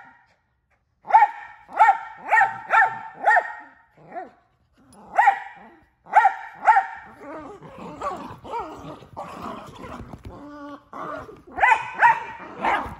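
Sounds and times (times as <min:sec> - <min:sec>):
dog barking: 0:00.0 - 0:00.3, 0:01.0 - 0:03.8, 0:05.1 - 0:07.2, 0:11.6 - 0:12.9.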